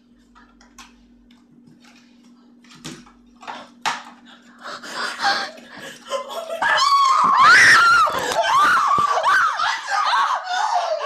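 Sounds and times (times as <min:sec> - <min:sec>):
person shrieking: 0:06.6 - 0:11.0.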